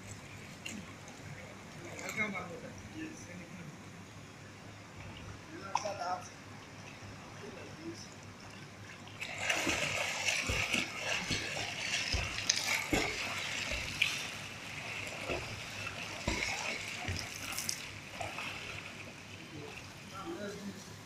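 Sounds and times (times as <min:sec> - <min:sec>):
swimmer splashing in pool: 0:09.1 - 0:20.1.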